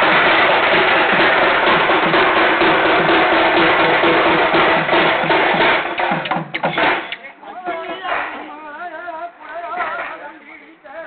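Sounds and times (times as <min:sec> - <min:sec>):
drums beating fast rhythm: 0:00.0 - 0:08.5.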